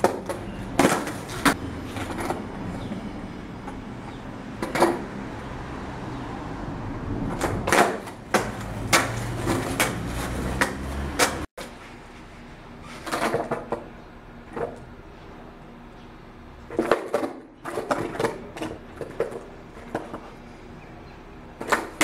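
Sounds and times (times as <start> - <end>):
skateboard landing knocks: 0.0 - 1.6, 7.4 - 10.0
skateboard wheels rolling: 0.0 - 5.2, 7.2 - 13.9, 16.7 - 20.5, 21.6 - 22.0.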